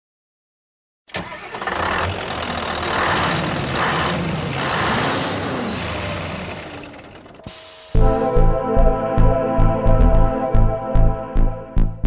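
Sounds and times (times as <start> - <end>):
truck engine revving: 1.2 - 7.5.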